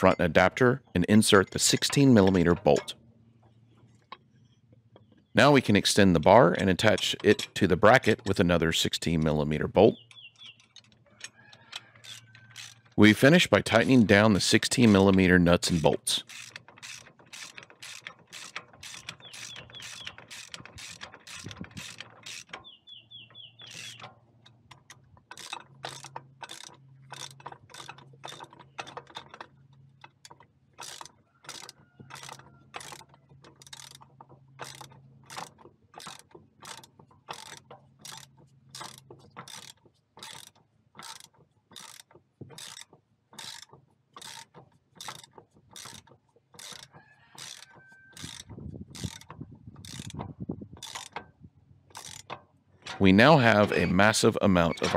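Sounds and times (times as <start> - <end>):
socket ratchet clicking: 10.0 - 51.3, 51.9 - 53.0.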